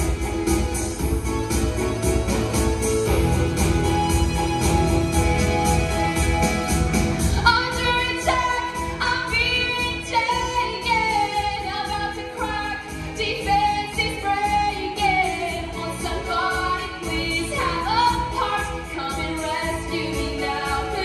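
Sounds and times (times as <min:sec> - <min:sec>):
backing music with steady beat: 0:00.0 - 0:21.0
woman singing: 0:07.2 - 0:21.0.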